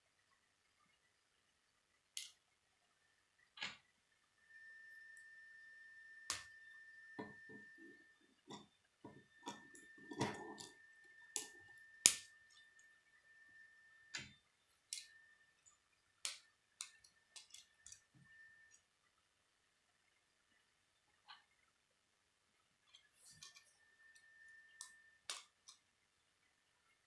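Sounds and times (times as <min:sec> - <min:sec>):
faint high whine: 0:00.0 - 0:27.0.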